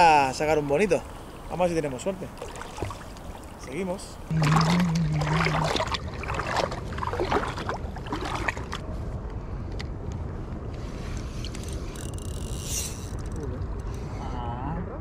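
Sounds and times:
water splashing and lapping: 1.0s - 8.9s.

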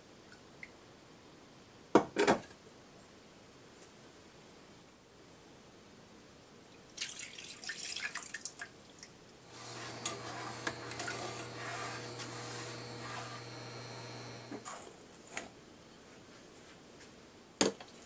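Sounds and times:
steady pouring stream with drips: 6.8s - 9.2s
water splashing into frying pan: 7.0s - 8.7s.

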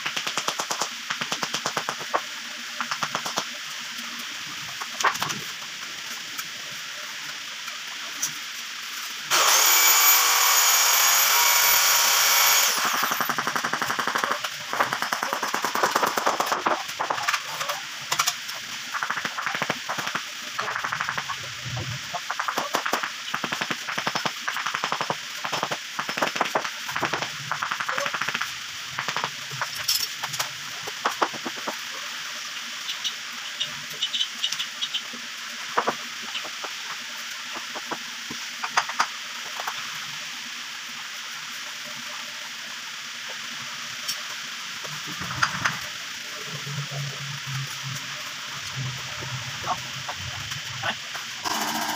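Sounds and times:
steady hiss: 0.0s - 10.4s, 12.2s - 51.9s
electric power tool running: 9.3s - 13.4s, 51.4s - 51.9s
bird chirps: 34.0s - 35.1s.

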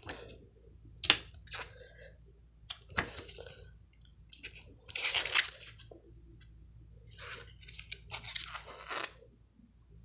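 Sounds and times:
paper pages being turned: 7.1s - 9.2s.

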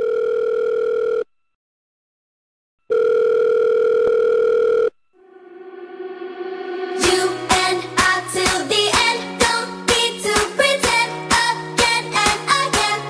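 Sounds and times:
telephone ringback beep: 0.0s - 1.3s, 2.9s - 5.1s
music: 5.2s - 13.0s.

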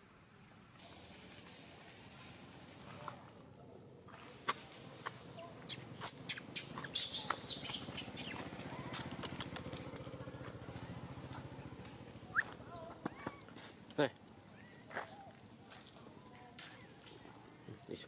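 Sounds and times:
sharp clicks: 9.0s - 10.1s.

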